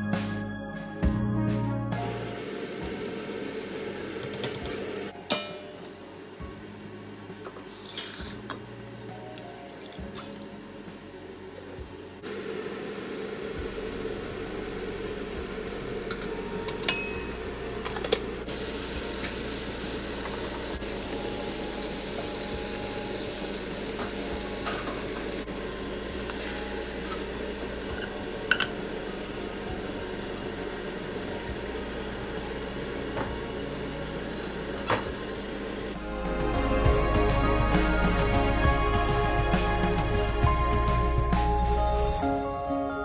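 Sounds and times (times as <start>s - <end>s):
steady hum: 8.2s - 36.0s
chicken sizzling in a wok: 18.5s - 35.9s.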